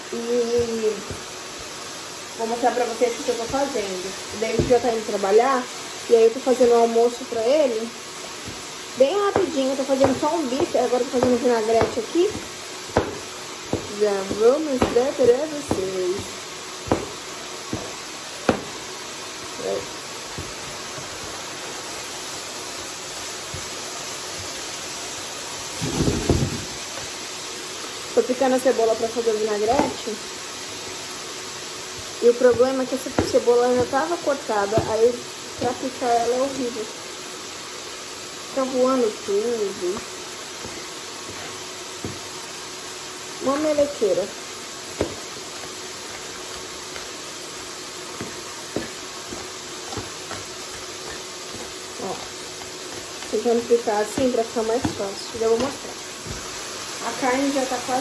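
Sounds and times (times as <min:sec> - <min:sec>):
steak sizzling in a frying pan: 0:00.0 - 0:58.0
knife tapping on cutting board: 0:09.3 - 0:15.0, 0:16.9 - 0:17.9.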